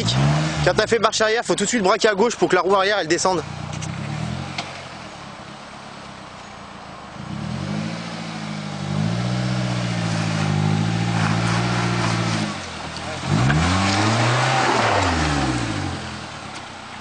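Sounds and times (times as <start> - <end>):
car engine pulling under load: 3.1 - 17.0.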